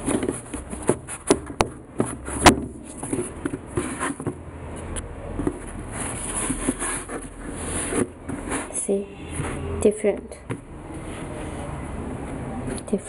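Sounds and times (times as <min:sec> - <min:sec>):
insoles rustling and rubbing: 0:00.0 - 0:09.7.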